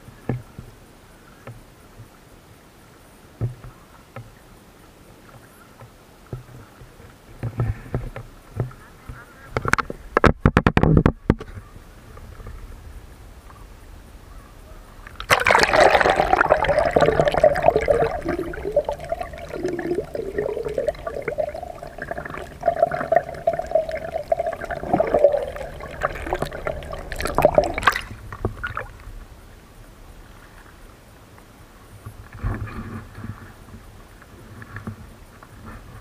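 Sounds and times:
water splashes: 15.1 - 29.1
muffled underwater gurgling: 15.2 - 28.9.

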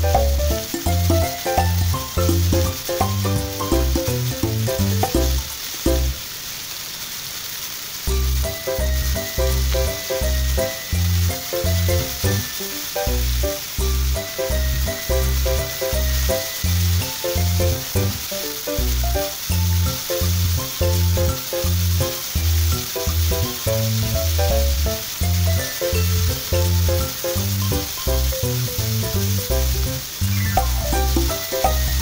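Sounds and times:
vegetables sizzling in a frying pan: 0.0 - 32.0
music with pulsing bass: 18.9 - 32.0.

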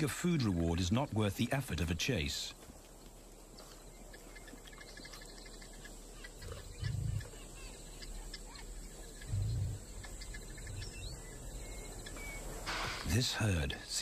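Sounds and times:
faint bush ambience: 0.0 - 14.0
short bird or insect calls: 3.4 - 14.0.

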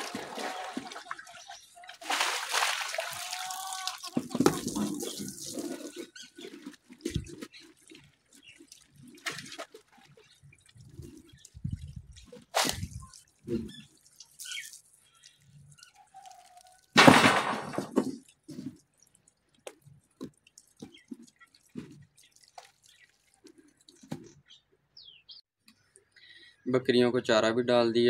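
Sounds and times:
loud water splash: 0.0 - 1.2, 2.0 - 5.7
water sloshing and dripping: 0.0 - 24.6.

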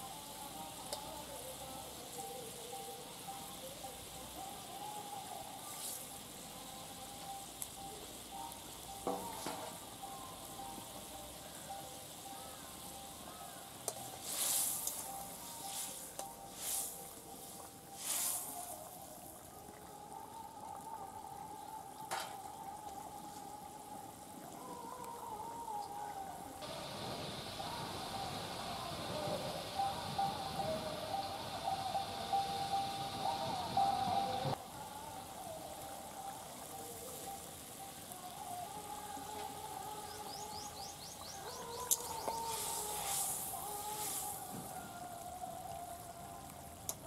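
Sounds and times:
wavering whine: 13.9 - 46.4.

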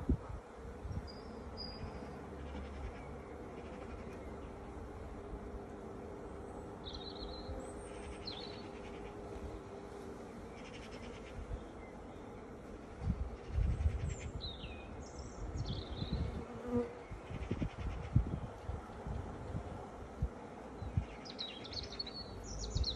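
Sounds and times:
bees buzzing: 0.4 - 13.7, 14.6 - 17.8.

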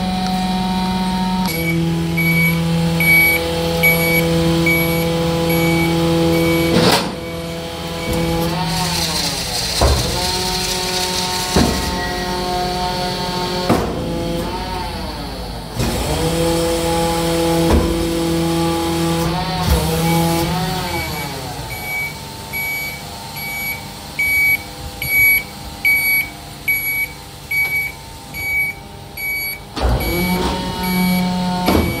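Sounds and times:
garbage truck engine and hydraulics: 0.0 - 32.0
truck warning beeps: 1.5 - 8.4, 11.7 - 12.4, 20.0 - 32.0.

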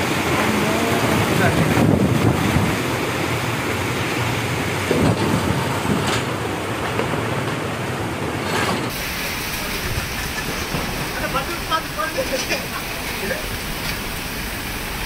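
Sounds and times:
wind buffeting microphone: 0.0 - 7.8
heavy rain pouring: 0.0 - 15.0.

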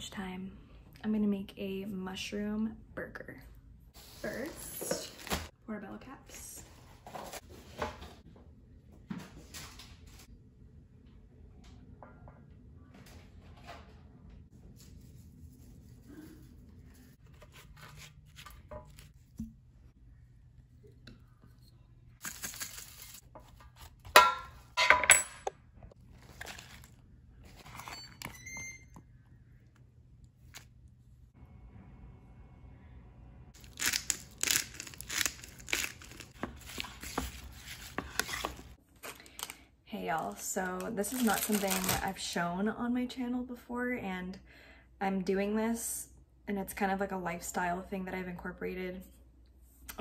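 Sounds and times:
salad crinkling and crunching: 26.1 - 27.8, 33.6 - 39.6.

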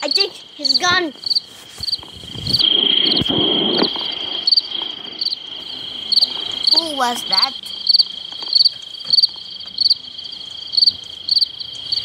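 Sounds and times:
cricket chirps: 0.0 - 12.0
rush of noise: 1.8 - 7.8.

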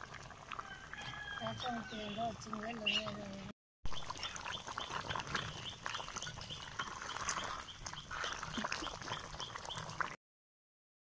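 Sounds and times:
gravy bubbling in a pot: 0.0 - 10.2
bird chirping: 3.9 - 10.0.

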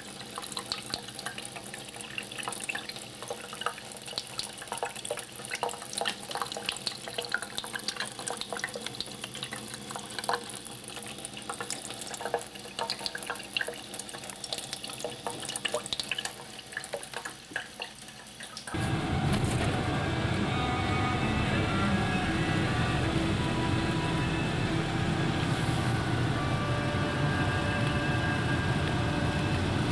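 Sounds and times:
small water splats and drips: 0.0 - 18.8
water running from a tap: 0.0 - 18.8
car driving rumble: 18.8 - 29.9.

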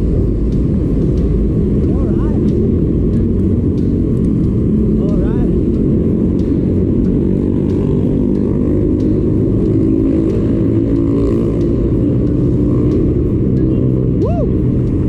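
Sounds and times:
car traffic: 0.0 - 15.0
wind and road rumble: 0.0 - 15.0.

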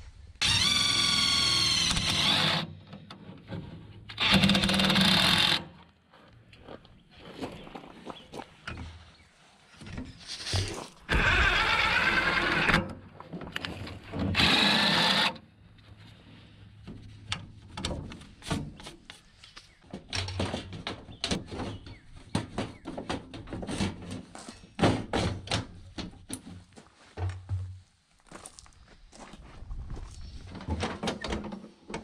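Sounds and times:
power drill driving screws: 0.4 - 2.8, 4.1 - 5.7, 11.1 - 12.9, 14.2 - 15.4.

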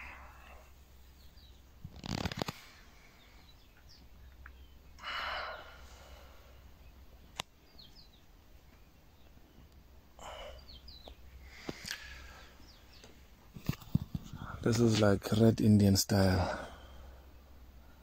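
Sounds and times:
breathy exhale: 5.0 - 6.6.

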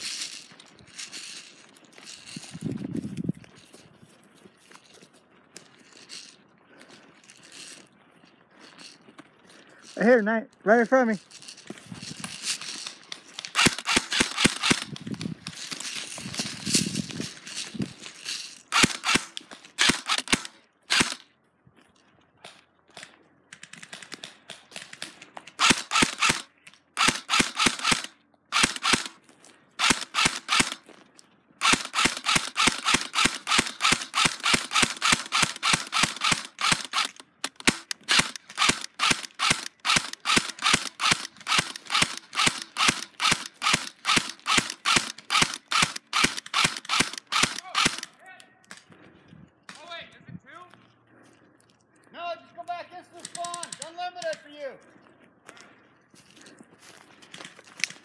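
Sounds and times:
airsoft guns firing: 13.4 - 14.9, 18.7 - 21.2, 23.8 - 29.2, 29.8 - 30.8, 31.6 - 48.1.

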